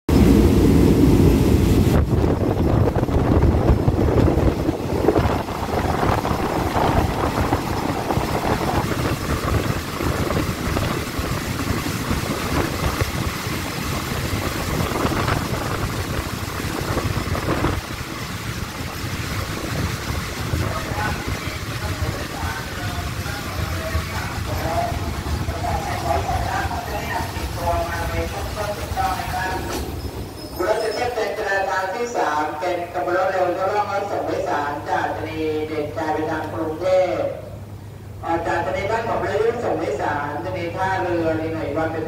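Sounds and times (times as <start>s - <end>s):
wind buffeting microphone: 0.1s - 29.2s
train rumbling on rails: 0.1s - 42.0s.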